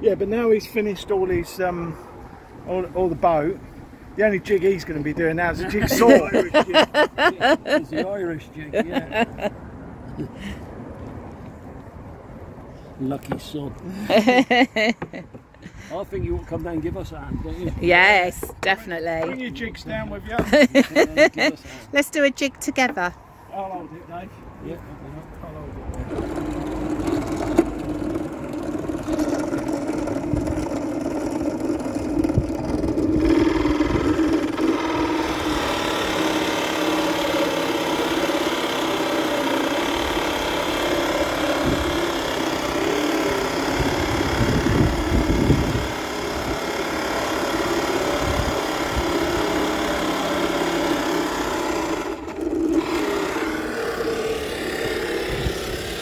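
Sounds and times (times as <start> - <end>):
drill bit cutting wood: 26.1 - 56.0
drill press motor hum: 26.1 - 56.0.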